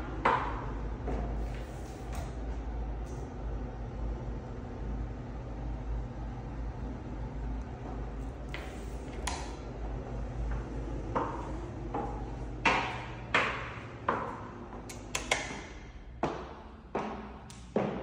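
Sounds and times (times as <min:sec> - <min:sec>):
steady low hum: 0:00.0 - 0:18.0
footsteps on hard floor: 0:08.5 - 0:09.2, 0:10.5 - 0:14.9, 0:16.2 - 0:18.0.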